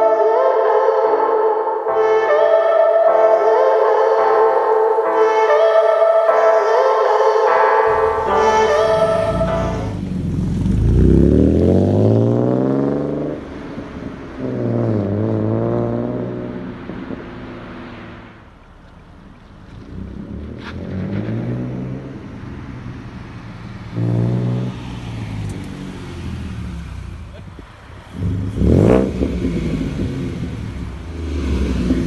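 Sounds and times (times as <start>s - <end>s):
car exhaust accelerating: 7.4s - 32.0s.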